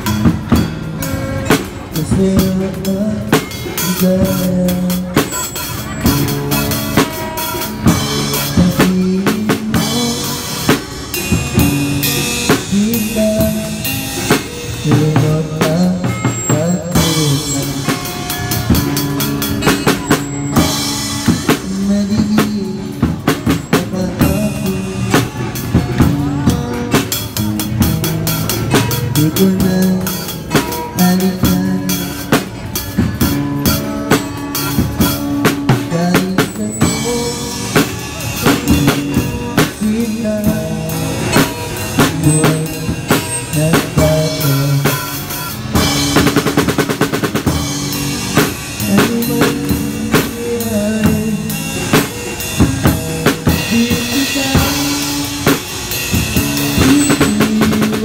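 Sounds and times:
drum kit playing a beat: 0.0s - 58.0s
fast drum roll: 17.0s - 58.0s.

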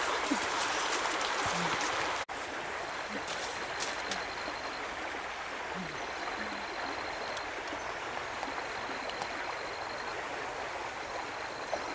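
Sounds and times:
stream water rushing: 0.0s - 11.9s.

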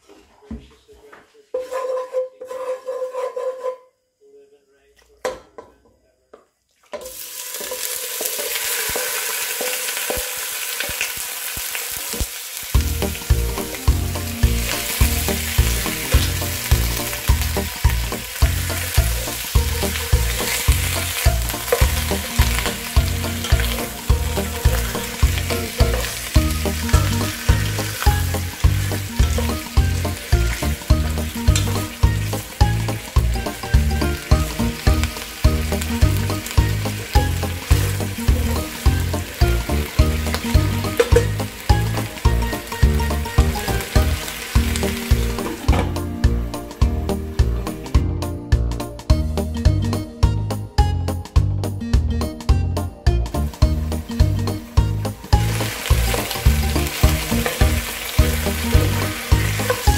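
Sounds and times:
wooden spatula stirring in pot: 0.0s - 3.9s, 6.8s - 10.3s, 14.5s - 33.4s, 54.5s - 59.9s
chicken sizzling in hot oil: 7.0s - 48.0s, 53.3s - 59.9s.

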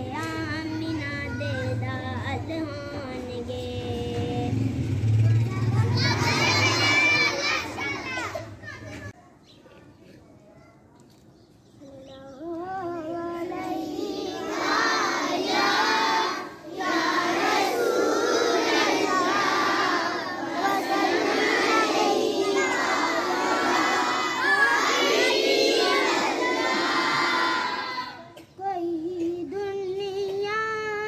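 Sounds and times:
boy singing: 0.0s - 4.7s, 11.8s - 31.0s
children chanting in unison: 5.4s - 8.5s, 13.4s - 28.4s.

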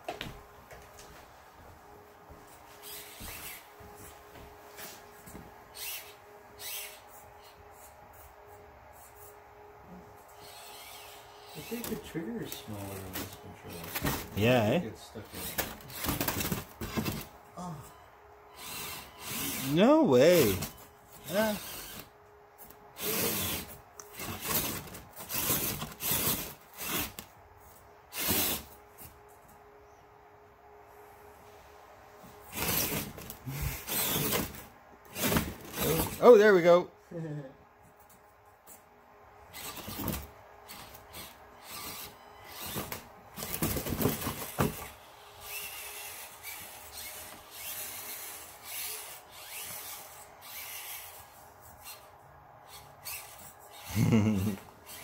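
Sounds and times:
toy car scraping styrofoam: 18.6s - 22.1s, 23.0s - 27.2s, 28.1s - 28.8s, 32.4s - 36.3s, 39.6s - 52.1s.

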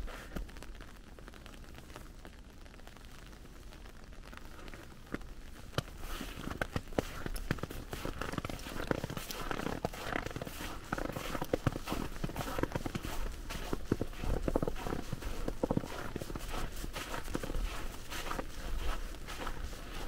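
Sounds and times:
footsteps crunching through snow: 5.8s - 20.0s.

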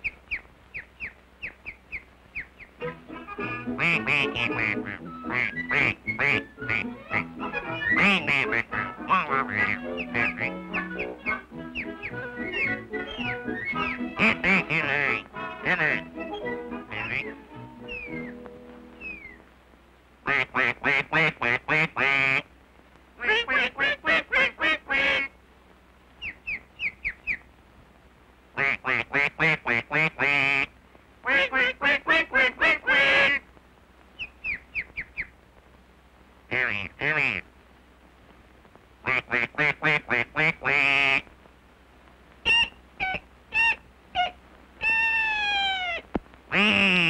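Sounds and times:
high falling peeps: 0.0s - 19.5s, 26.2s - 27.5s, 34.1s - 35.4s, 42.4s - 47.0s
cartoon duck quacking: 2.8s - 18.4s, 23.2s - 25.3s, 28.6s - 33.4s, 36.5s - 37.4s, 42.4s - 47.0s
duck loud squawk: 2.8s - 18.4s, 23.2s - 25.3s, 28.6s - 33.4s, 42.4s - 47.0s
cartoon chick crying: 8.8s - 15.1s, 15.7s - 18.4s, 32.6s - 33.4s, 42.5s - 46.8s.

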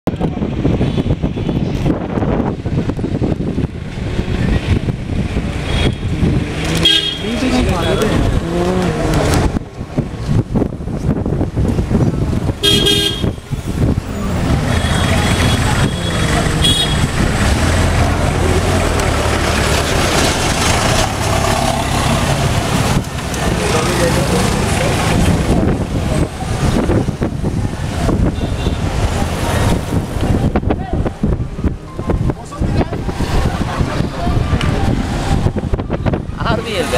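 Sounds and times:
street traffic: 0.0s - 36.9s
rumble of passing vehicles: 0.1s - 36.9s
wind buffeting microphone: 0.1s - 36.9s
heavy vehicle engine humming: 11.0s - 28.3s.

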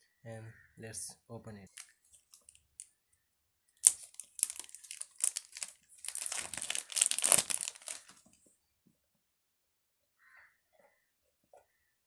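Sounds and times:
plastic film snapping: 3.8s - 8.2s
plastic film crinkling: 3.8s - 8.4s.

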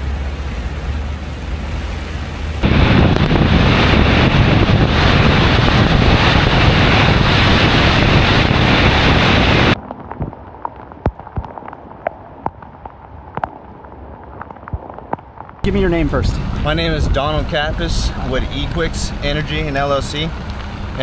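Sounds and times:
floodwater spray rushing: 0.0s - 9.8s, 15.7s - 21.0s
wind: 0.0s - 21.0s.

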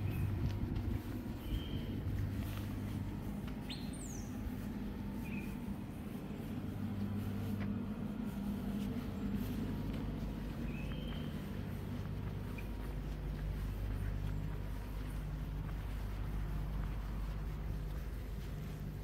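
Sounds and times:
birds chirping: 0.0s - 7.3s, 8.9s - 15.3s
low hum of traffic: 0.0s - 19.0s.

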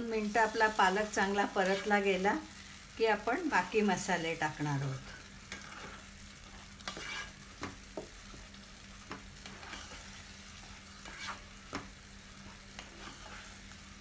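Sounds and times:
paste sizzling in a pan: 0.0s - 14.0s
spatula scraping pan: 1.2s - 2.1s, 5.2s - 8.3s, 9.0s - 14.0s.

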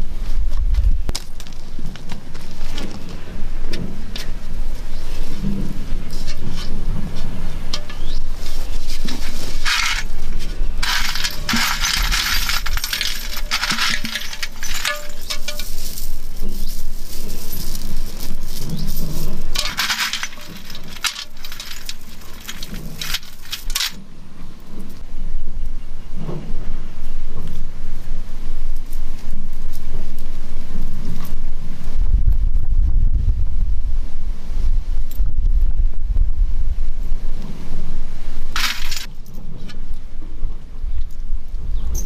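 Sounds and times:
metal chains jingling: 10.8s - 16.8s.

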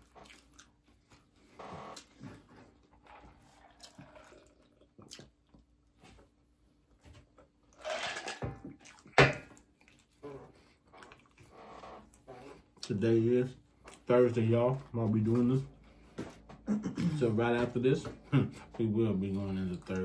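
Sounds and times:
chewing clicks and smacks: 3.8s - 5.7s.

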